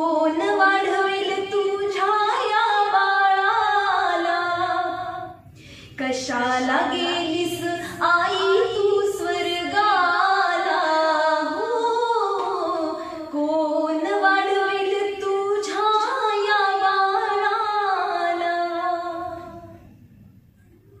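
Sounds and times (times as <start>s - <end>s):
woman singing long wavering notes: 6.0s - 19.6s.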